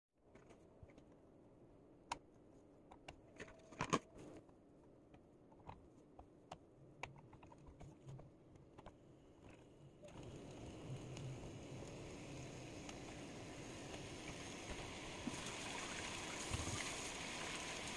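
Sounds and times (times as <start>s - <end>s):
faint steady hiss: 4.2s - 17.9s.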